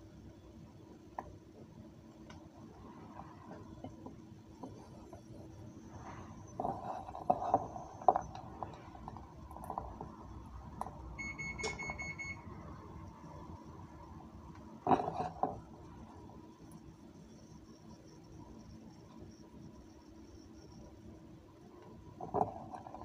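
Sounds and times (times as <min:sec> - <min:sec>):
short electronic beep: 0:11.2 - 0:12.5.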